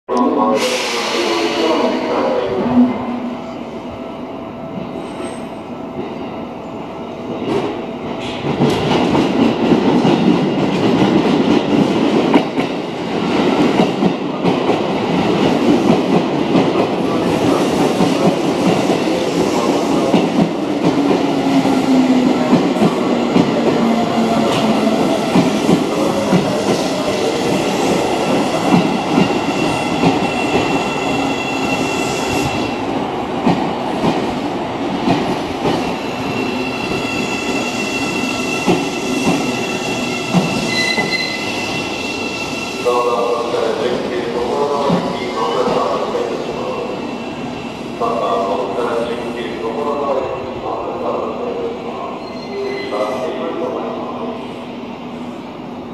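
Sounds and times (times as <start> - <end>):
low falling tone of train: 0.1 - 55.9
train wheels clattering over rails: 33.4 - 41.9
high brake squeal: 40.6 - 42.9, 52.2 - 53.2.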